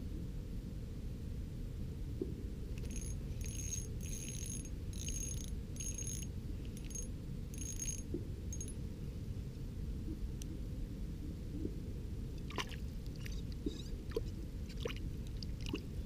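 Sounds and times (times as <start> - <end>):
fishing reel whirring rattle: 2.8 - 8.8.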